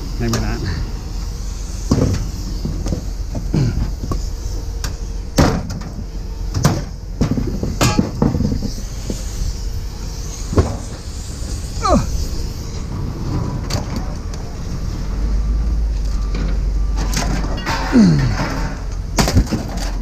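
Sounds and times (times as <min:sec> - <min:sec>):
steady low hum: 0:00.0 - 0:20.0
scrap metal knocks and clanks: 0:04.8 - 0:08.8, 0:16.4 - 0:20.0.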